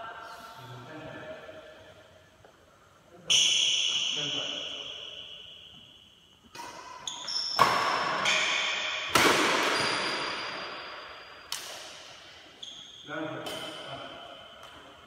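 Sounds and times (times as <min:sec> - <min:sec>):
rackets hitting shuttlecock: 0:06.5 - 0:12.4, 0:13.3 - 0:15.0.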